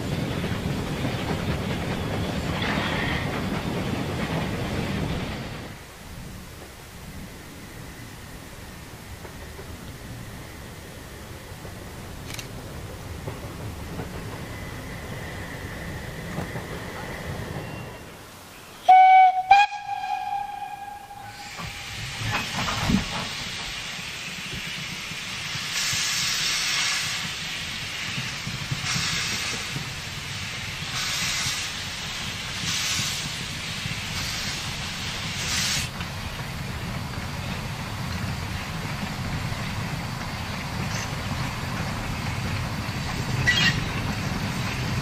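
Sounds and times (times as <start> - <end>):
steam locomotive whistle: 18.8 - 22.2
steam exhaust puffing: 21.1 - 36.0.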